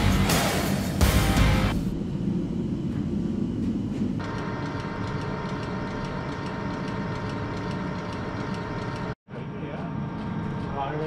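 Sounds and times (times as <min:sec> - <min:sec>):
high whine: 0:00.0 - 0:07.3
machine tool humming: 0:04.2 - 0:09.2.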